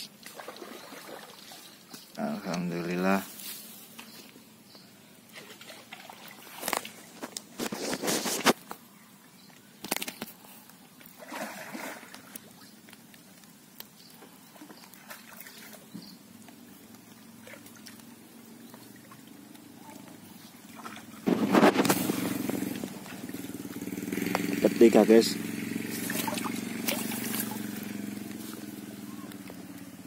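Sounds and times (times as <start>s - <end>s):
fish splashing in water: 0.0s - 1.9s, 11.0s - 12.8s, 14.4s - 16.0s, 16.8s - 24.6s, 25.8s - 30.0s
rustling: 5.3s - 8.8s, 20.1s - 23.6s.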